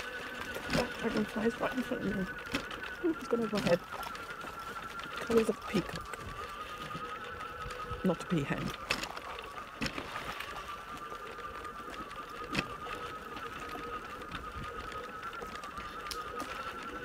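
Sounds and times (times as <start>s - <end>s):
electric motor whining: 0.0s - 17.0s
wheels on gravel: 0.0s - 17.0s.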